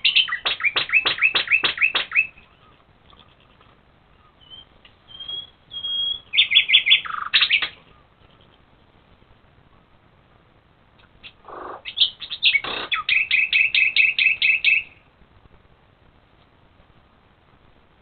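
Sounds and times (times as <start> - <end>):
rapid high chirping: 0.0 - 9.0, 11.0 - 15.0
low buzzy animal call: 1.8 - 8.9, 11.2 - 13.1.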